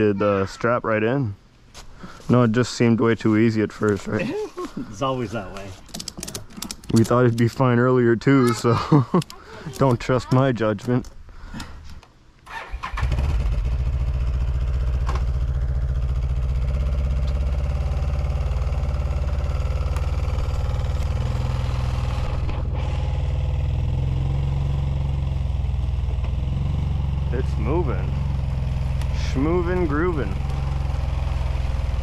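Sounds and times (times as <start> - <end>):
atv engine running: 12.9 - 32.0.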